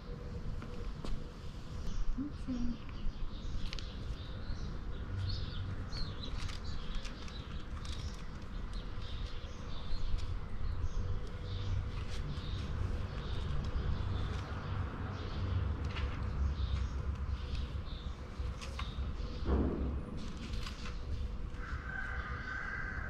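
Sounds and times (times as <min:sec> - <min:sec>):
small birds chirping: 0:00.0 - 0:19.9.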